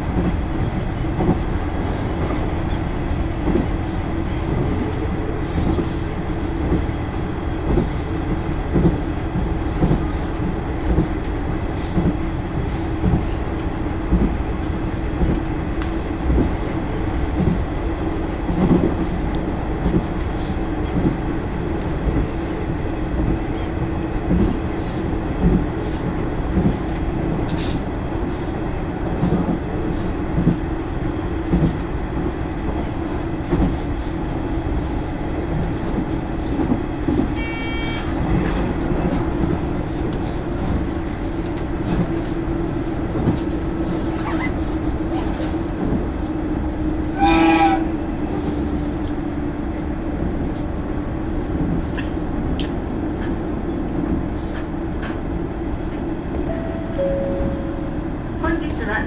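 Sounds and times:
railcar engine and wheel hum: 0.0 - 59.0
train horn blast: 37.4 - 38.2, 47.1 - 48.0.

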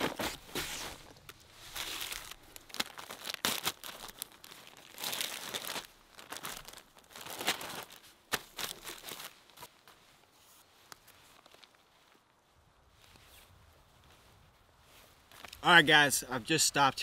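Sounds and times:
plastic bags crinkling: 0.0 - 9.7.

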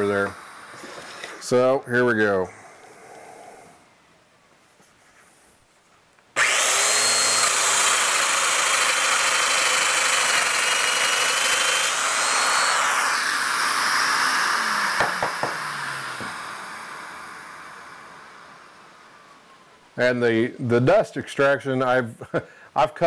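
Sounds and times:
dust extractor rushing: 6.4 - 18.4
power joiner cutter whine: 6.4 - 19.3.

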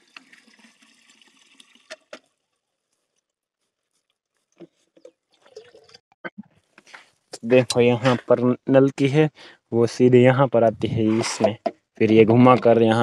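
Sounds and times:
water trickling into plastic drum: 0.0 - 6.9.

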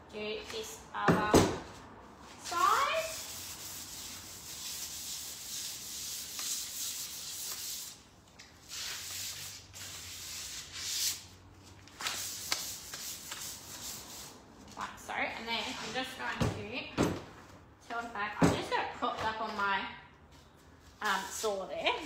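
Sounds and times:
sandpaper rubbing on wood: 2.4 - 8.0, 8.6 - 11.2.

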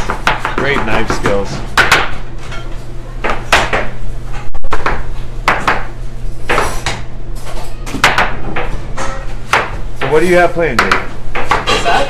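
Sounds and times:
steady low hum: 0.0 - 12.0
knife chopping on plastic board: 9.5 - 11.8.

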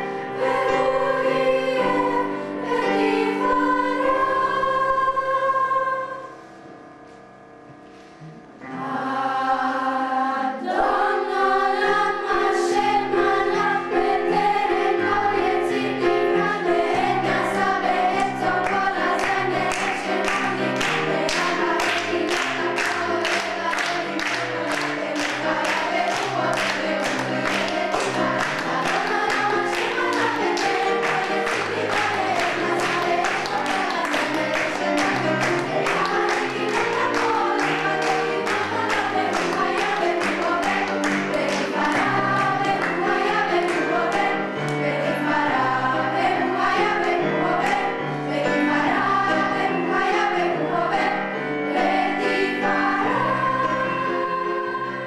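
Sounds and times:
children's choir singing: 0.0 - 6.8, 8.6 - 55.0
audience clapping along: 18.2 - 45.0.

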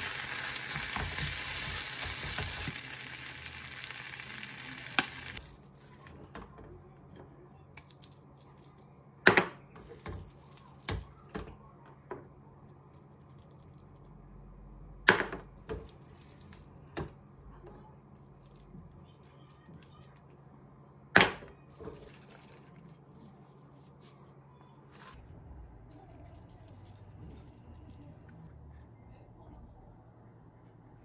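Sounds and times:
rice sizzling in a frying pan: 0.0 - 5.6.

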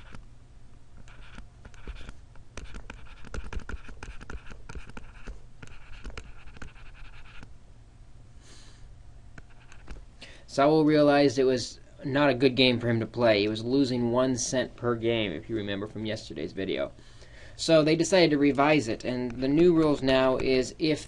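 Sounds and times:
steady low hum: 0.0 - 21.0
stylus writing on tablet screen: 1.0 - 7.5, 9.4 - 10.0, 18.1 - 21.0.

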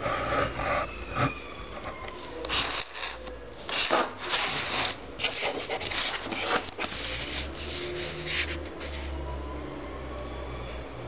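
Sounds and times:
cardboard box scraping on table: 3.7 - 9.1.

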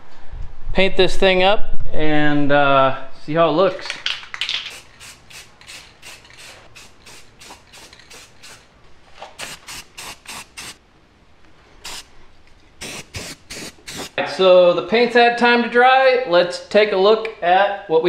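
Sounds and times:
spray paint can hissing: 4.4 - 8.7, 9.4 - 10.8, 11.8 - 12.1, 12.8 - 14.2.

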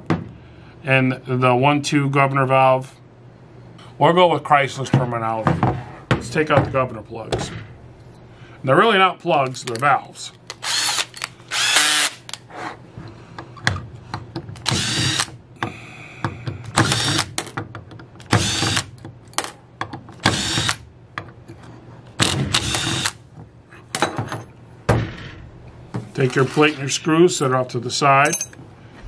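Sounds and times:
cordless drill running: 10.6 - 12.2, 14.7 - 15.3, 16.8 - 17.3, 20.4 - 20.8.

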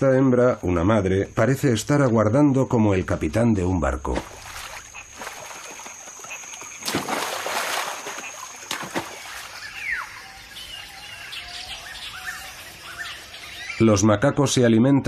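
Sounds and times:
splashes into river water: 4.1 - 10.0.

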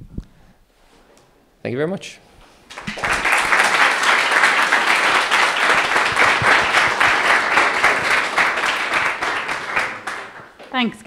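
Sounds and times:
audience applauding: 2.7 - 10.6.

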